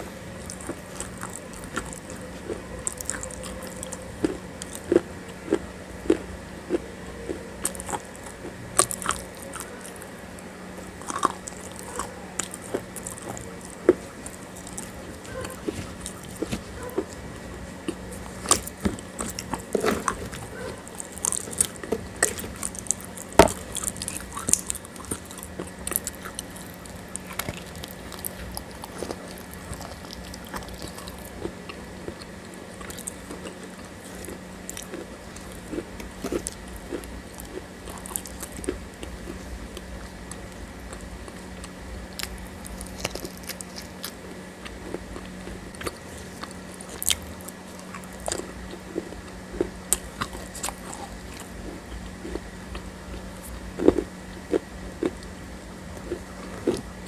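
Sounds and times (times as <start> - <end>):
chewing with sharp crunches: 0.0 - 57.0
faint steady hum: 0.0 - 57.0.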